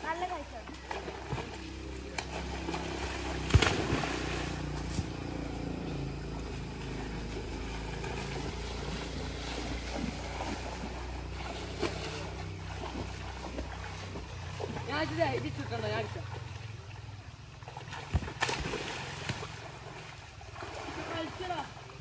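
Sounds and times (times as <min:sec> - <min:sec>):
children splashing in water: 0:00.0 - 0:22.0
steady low rumble: 0:01.3 - 0:14.9.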